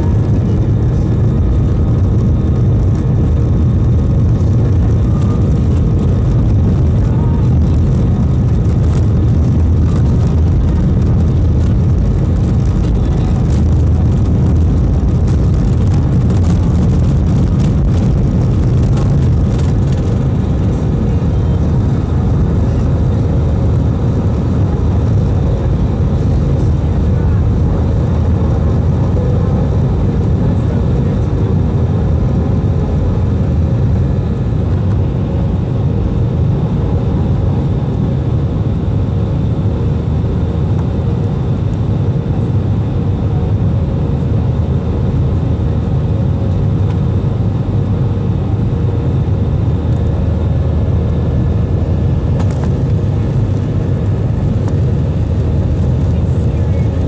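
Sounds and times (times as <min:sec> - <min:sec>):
jet engines roaring: 0:00.0 - 0:57.0.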